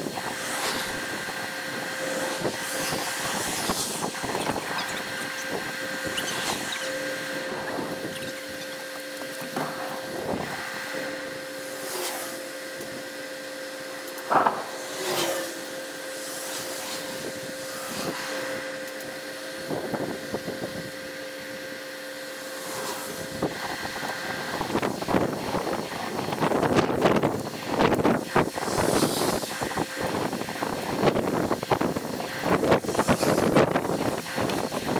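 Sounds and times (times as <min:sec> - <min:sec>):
wind buffeting microphone: 0:00.0 - 0:08.8, 0:23.2 - 0:34.9
steady whirring hum: 0:00.0 - 0:34.9.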